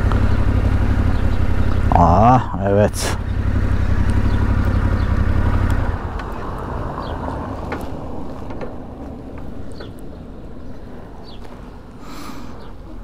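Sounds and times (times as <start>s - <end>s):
motorcycle engine running: 0.0s - 10.7s
bird chirps: 0.2s - 1.9s, 3.2s - 7.4s.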